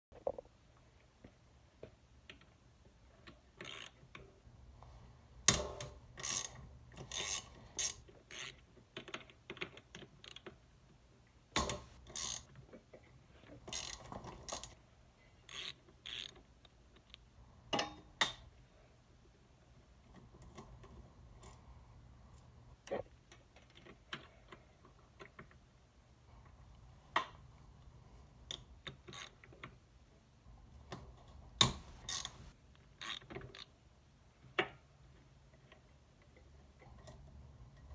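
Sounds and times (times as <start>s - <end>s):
ratchet wrench clicking: 6.2s - 8.5s, 11.6s - 12.5s, 15.5s - 16.4s, 31.6s - 33.2s.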